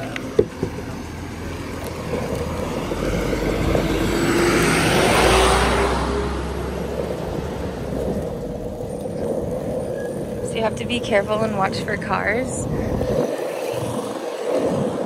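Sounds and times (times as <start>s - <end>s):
vehicle driving past: 0.8s - 10.8s.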